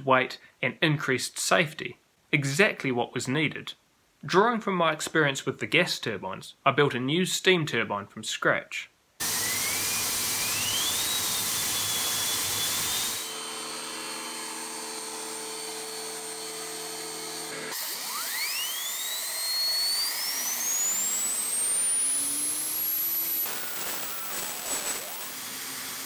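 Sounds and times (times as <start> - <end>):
turbine high whine: 9.3 - 15.2, 17.4 - 26.0
steam hiss: 23.4 - 25.9.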